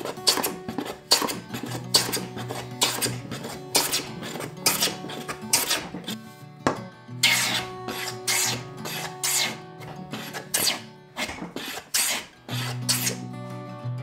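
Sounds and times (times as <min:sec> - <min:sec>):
hand plane shaving wood: 0:00.0 - 0:06.2, 0:07.2 - 0:13.2
acoustic guitar music: 0:00.0 - 0:14.0.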